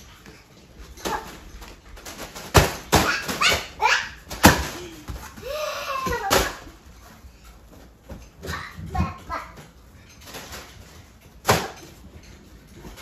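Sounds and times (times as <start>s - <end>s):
foil balloons crinkly smacks: 1.0s - 6.8s.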